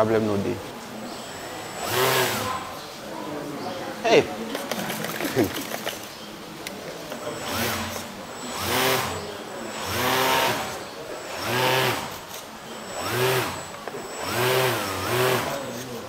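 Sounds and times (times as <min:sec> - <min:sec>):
electric model plane motor whine: 0:01.4 - 0:02.7, 0:07.2 - 0:15.9.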